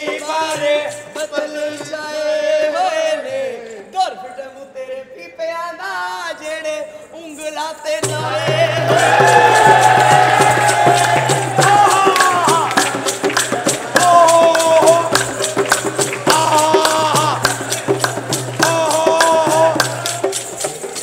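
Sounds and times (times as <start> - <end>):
hand drum beating: 8.0 - 21.0.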